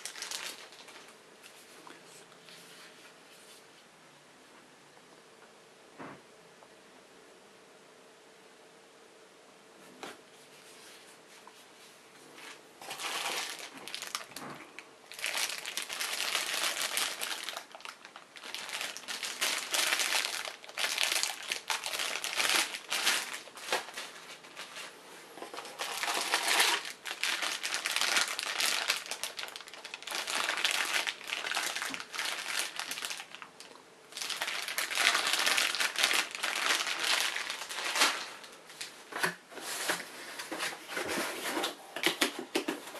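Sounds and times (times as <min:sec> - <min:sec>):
plastic bags crinkling: 0:00.0 - 0:01.2, 0:12.8 - 0:40.0.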